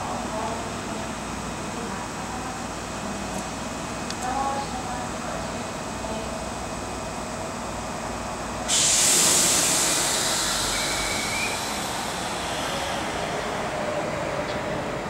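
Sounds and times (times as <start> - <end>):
train compressed air hiss: 8.7 - 14.0.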